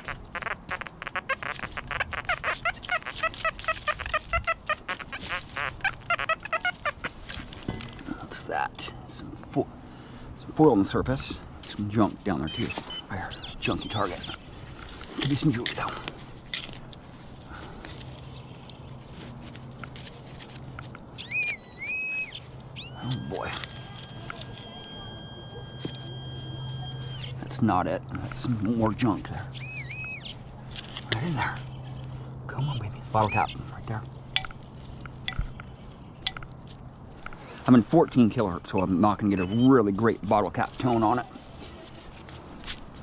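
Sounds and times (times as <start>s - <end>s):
metal detector short beeps: 21.2s - 27.3s, 38.8s - 39.7s.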